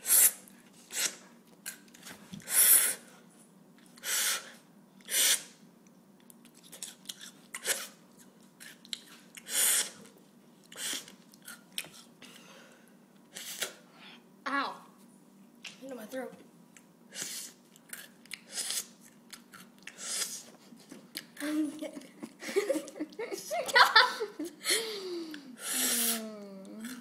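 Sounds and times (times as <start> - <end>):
hissing air sucking bursts: 25.6 - 26.2.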